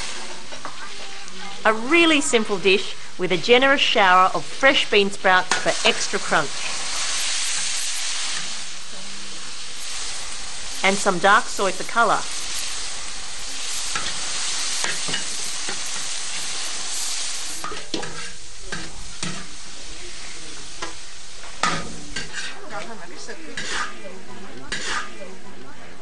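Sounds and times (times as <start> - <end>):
vegetables sizzling in a wok: 0.0 - 26.0
metal ladle scraping and knocking wok: 13.8 - 16.2, 17.6 - 19.5, 20.8 - 22.6, 23.5 - 25.2.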